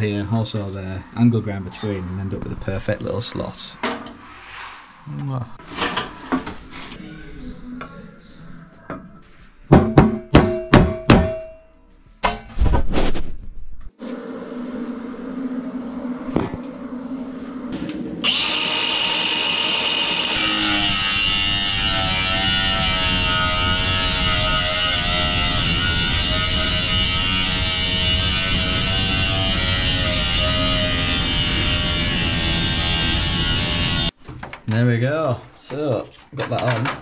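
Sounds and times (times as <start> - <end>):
angle grinder cutting sheet metal: 18.2 - 34.2.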